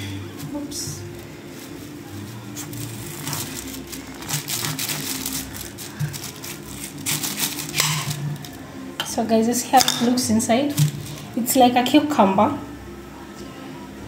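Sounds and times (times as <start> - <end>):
foil crinkling: 0.4 - 8.7, 10.8 - 11.4.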